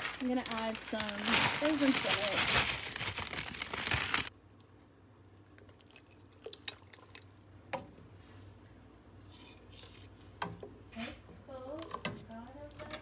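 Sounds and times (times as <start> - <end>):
plastic bag crinkling: 0.0 - 4.3.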